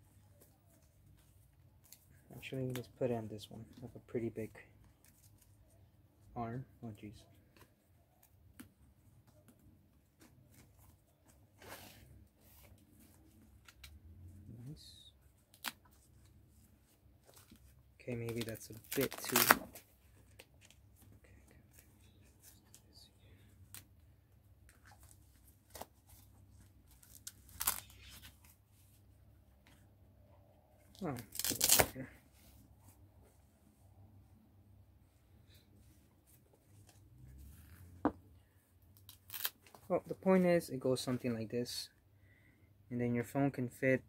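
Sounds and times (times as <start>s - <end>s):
strap rustling: 15.2s - 29.9s, 30.7s - 34.0s, 35.0s - 40.2s
hook-and-loop strap ripping: 18.3s - 19.8s, 26.9s - 28.5s, 31.0s - 32.0s, 39.0s - 39.9s.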